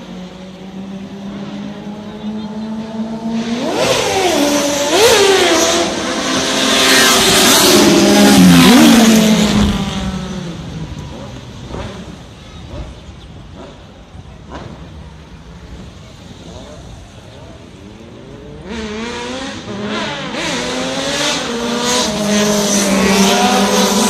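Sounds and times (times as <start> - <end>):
motorcycles revving past: 0.0 - 12.2, 17.8 - 24.0.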